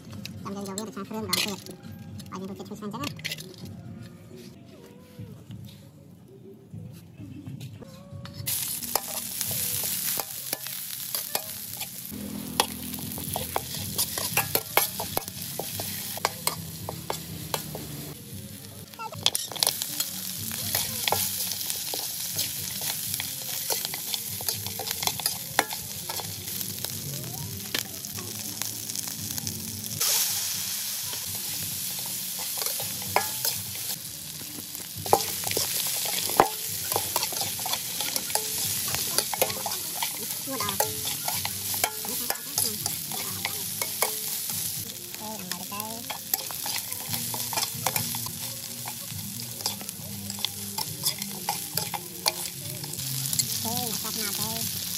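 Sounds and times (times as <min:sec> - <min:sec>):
spatula clacking and scraping: 0:08.2 - 0:18.0, 0:19.1 - 0:27.0, 0:31.2 - 0:54.8
food sizzling in a pan: 0:08.4 - 0:54.9.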